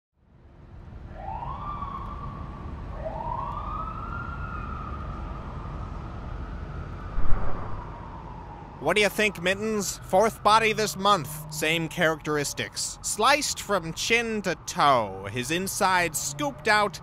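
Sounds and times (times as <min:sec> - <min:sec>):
siren wailing: 0:06.8 - 0:08.7
low rumble: 0:07.1 - 0:08.1
short thump: 0:07.2 - 0:07.8.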